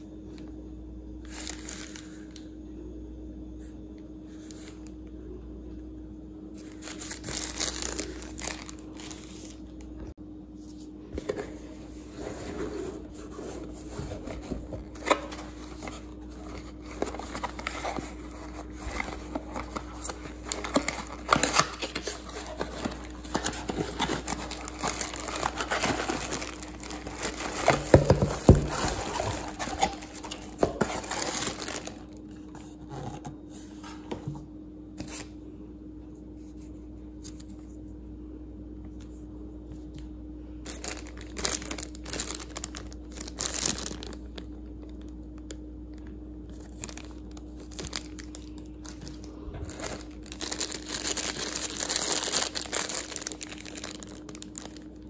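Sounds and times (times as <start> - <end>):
packaging crinkling and rustling: 1.2 - 2.5, 6.6 - 10.1, 11.2 - 34.1, 40.6 - 55.0.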